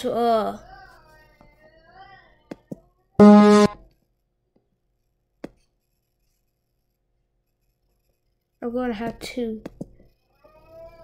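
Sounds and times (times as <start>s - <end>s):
short musical note: 3.2s - 3.8s.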